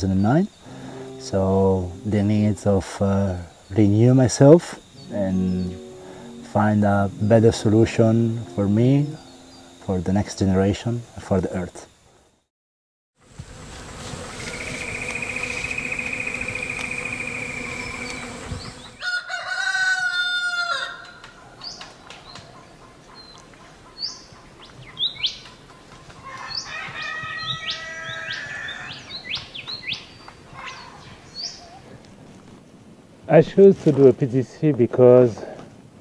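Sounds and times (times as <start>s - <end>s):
small birds chirping: 0.0s - 10.0s, 14.3s - 19.0s, 21.4s - 32.0s
steady drone with wavering tone: 0.0s - 11.3s, 13.7s - 19.0s
rooster crowing: 14.9s - 21.6s, 26.2s - 29.2s.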